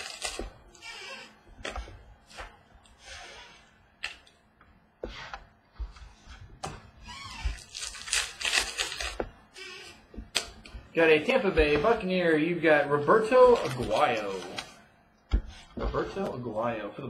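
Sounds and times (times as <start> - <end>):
soft rustling of cards: 10.6 - 14.8.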